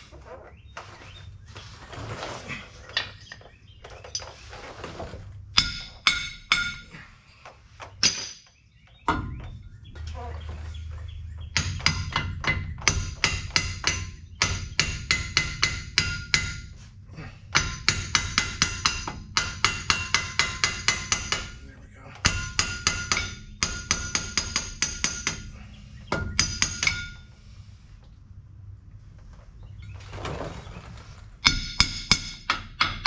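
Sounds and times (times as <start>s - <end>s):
hammer striking steel: 5.6s - 7.0s, 11.4s - 16.7s, 17.5s - 21.6s, 22.2s - 27.3s, 31.4s - 33.0s.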